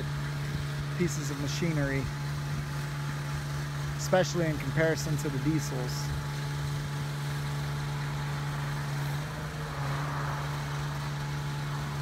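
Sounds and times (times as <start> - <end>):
truck engine humming: 0.0 - 12.0.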